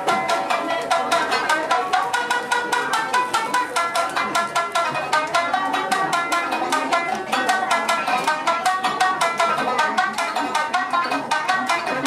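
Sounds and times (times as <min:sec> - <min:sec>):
shamisen played solo: 0:00.0 - 0:12.0.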